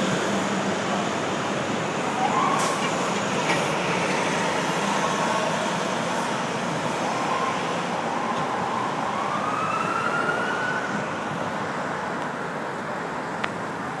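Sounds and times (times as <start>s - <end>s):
city traffic noise: 0.0s - 14.0s
ambulance siren wailing: 2.1s - 3.0s, 6.9s - 11.3s, 13.8s - 14.0s.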